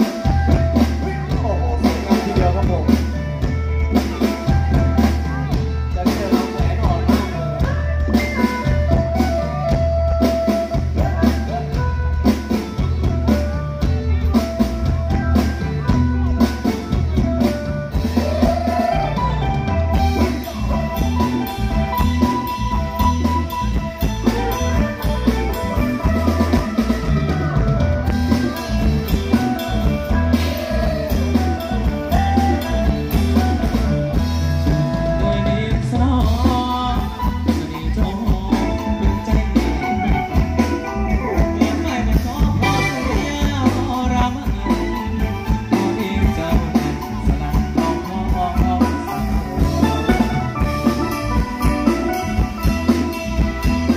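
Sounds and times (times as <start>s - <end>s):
live rock band playing: 0.0s - 53.9s
person singing into a microphone: 4.6s - 12.9s, 18.0s - 19.5s, 28.5s - 33.8s, 34.7s - 51.0s.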